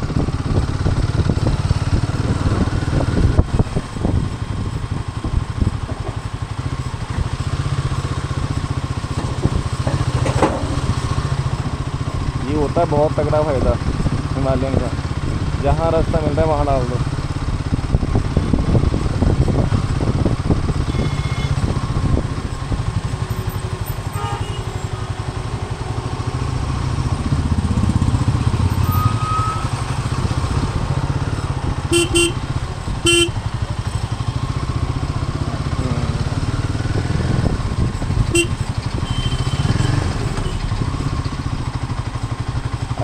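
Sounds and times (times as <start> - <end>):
motorcycle engine running: 0.0 - 43.0
vehicle horn beeps: 20.8 - 21.7, 24.0 - 25.2, 31.8 - 33.4, 38.3 - 40.7.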